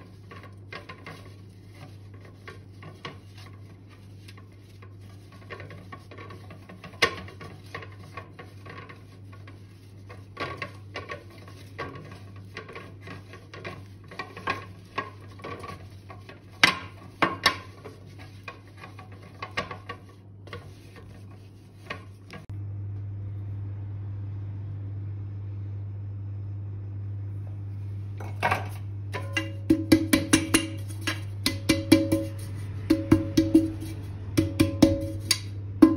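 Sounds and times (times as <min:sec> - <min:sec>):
paper towel scraping metal pan: 0:00.0 - 0:22.5, 0:28.4 - 0:35.9
steady low hum: 0:00.0 - 0:35.9
metal pan taps and clinks: 0:28.2 - 0:35.9.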